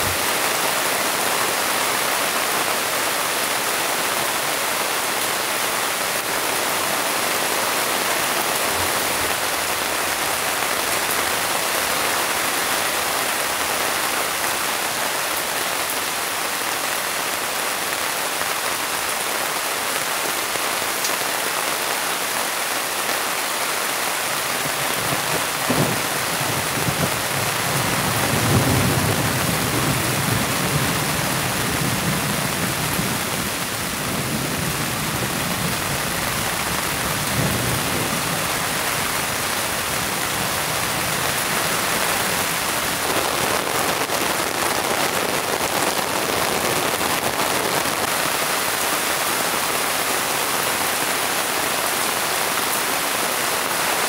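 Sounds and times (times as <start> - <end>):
heavy rain pouring: 0.0 - 54.0
low rumble of thunder: 24.6 - 36.1.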